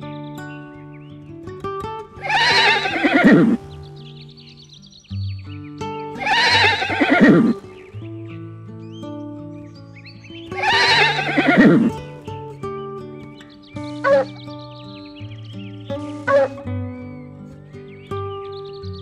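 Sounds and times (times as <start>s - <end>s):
horse whinnying: 2.2s - 3.7s, 6.2s - 7.7s, 10.6s - 12.0s.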